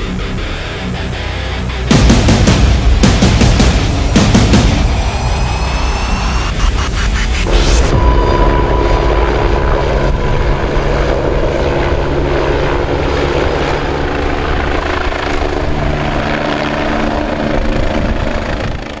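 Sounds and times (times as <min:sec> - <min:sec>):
helicopter rotor and turbine: 0:00.0 - 0:19.0.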